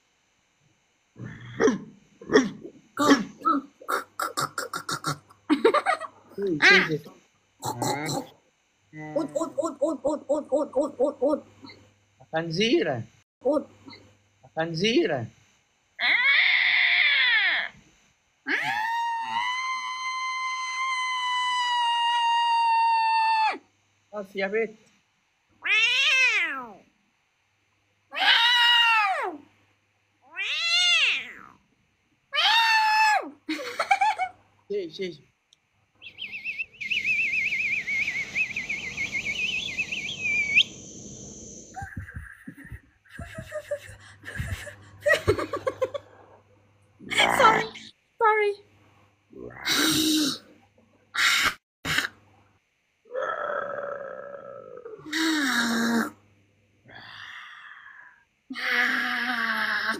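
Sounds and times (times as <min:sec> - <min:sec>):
woman squealing: 0:16.0 - 0:17.7, 0:18.5 - 0:23.6, 0:32.4 - 0:33.3
person whistling warbling note: 0:36.4 - 0:40.8.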